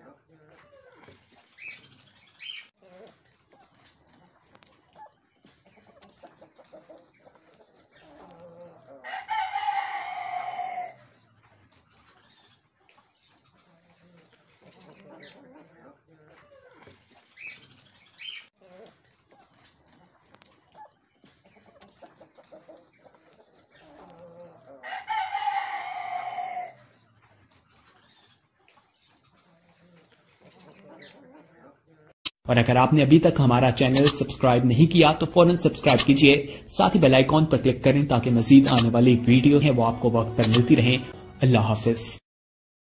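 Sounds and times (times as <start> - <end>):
soft clucking: 0.0 - 9.5, 10.4 - 24.8, 26.4 - 32.2
rooster crowing: 8.4 - 11.0, 24.1 - 26.8.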